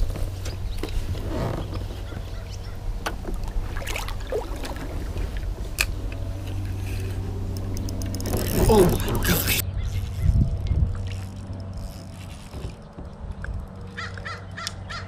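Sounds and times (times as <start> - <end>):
steady low rumble: 0.0 - 15.0
fishing gear clicks and knocks: 4.6 - 14.8.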